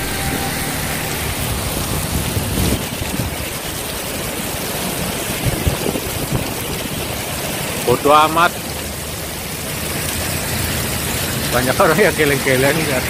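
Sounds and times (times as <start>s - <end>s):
wind buffeting microphone: 0.0s - 4.4s, 5.3s - 7.0s
heavy rain pouring: 0.0s - 13.0s.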